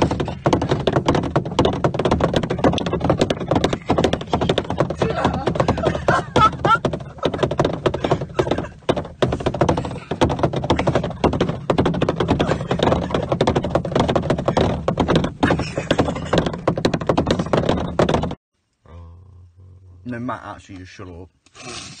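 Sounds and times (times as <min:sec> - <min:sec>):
camera handling knocks and rubs: 0:00.0 - 0:18.4.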